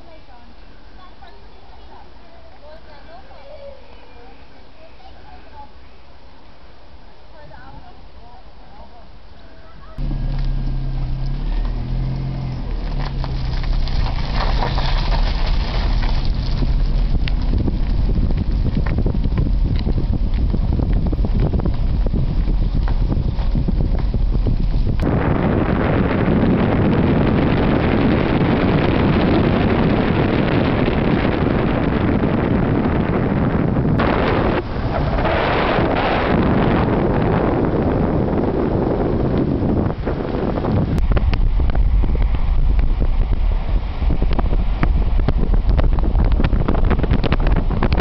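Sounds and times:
vehicle road noise: 9.3 - 48.0
wind on microphone: 9.8 - 48.0
car engine running: 10.0 - 36.6
tyres rolling over gravel: 10.0 - 38.7.

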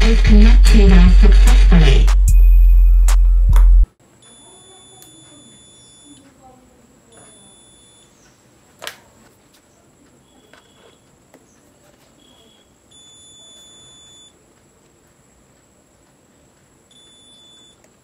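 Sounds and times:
multimeter continuity buzzer beeping: 4.1 - 6.4, 7.1 - 8.3, 10.2 - 11.2, 12.2 - 14.4, 16.8 - 18.0.

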